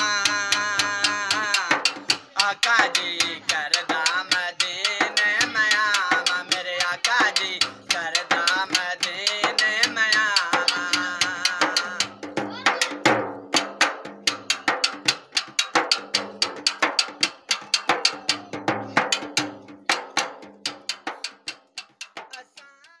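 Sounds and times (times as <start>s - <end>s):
man singing: 0.0s - 13.0s, 16.4s - 19.2s, 22.2s - 23.0s
metal pot drumming: 0.0s - 22.6s.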